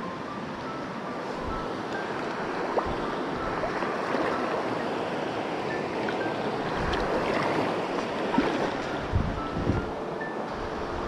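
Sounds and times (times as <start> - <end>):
stream flowing over rocks: 1.7 - 9.1.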